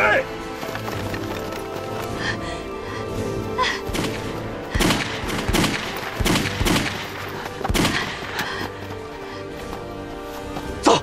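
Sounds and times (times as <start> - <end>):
rifle shots: 3.9 - 8.3.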